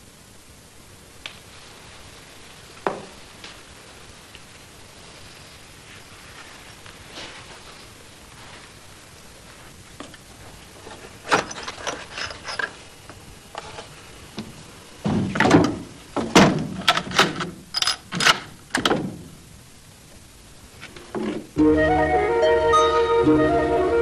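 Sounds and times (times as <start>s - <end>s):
rifle bolt clicking and clacking: 16.8s - 18.8s.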